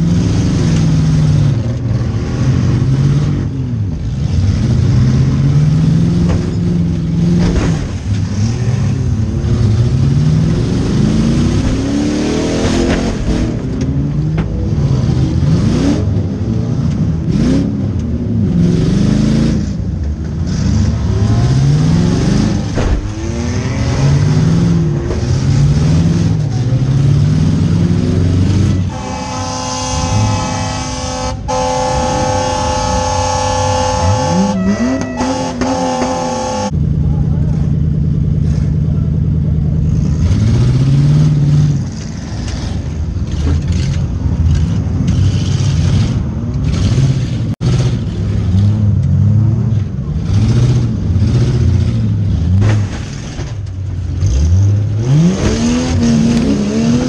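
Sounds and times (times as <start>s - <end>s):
car engine revving: 0.0s - 37.6s, 38.4s - 57.0s
car impact bangs: 7.3s - 8.3s, 22.6s - 23.5s
steady horn: 28.8s - 36.8s.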